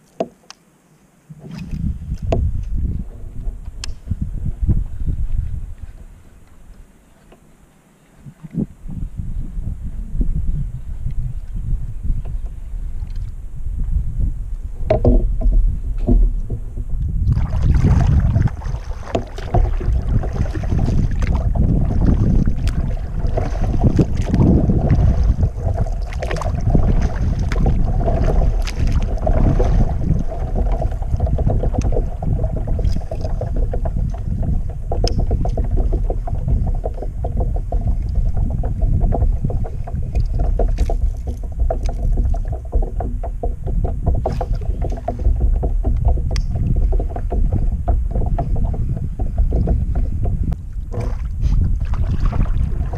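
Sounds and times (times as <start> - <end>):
steady low rumble: 1.2 - 6.8, 8.5 - 52.9
paddle splashing in water: 14.9 - 52.9
water dripping off paddle: 17.3 - 52.9
small clicks and knocks: 32.8 - 51.2.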